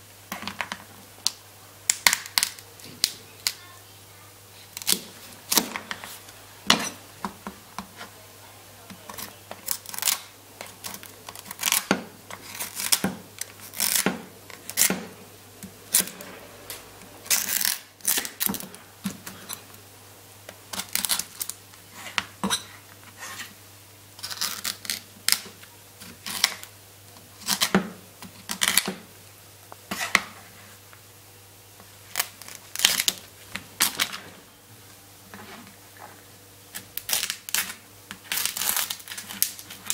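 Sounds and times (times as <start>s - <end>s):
knife cracking crab shell: 9.1s - 15.0s, 36.7s - 39.9s.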